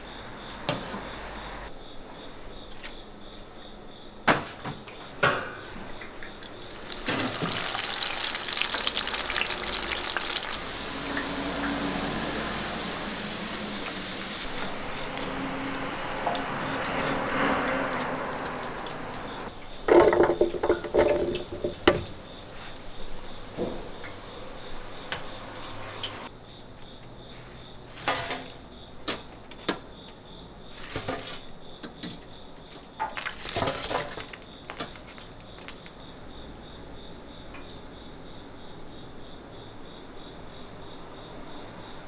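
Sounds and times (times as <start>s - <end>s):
fried food clattering into container: 6.7s - 10.6s, 16.2s - 22.1s, 30.8s - 36.0s.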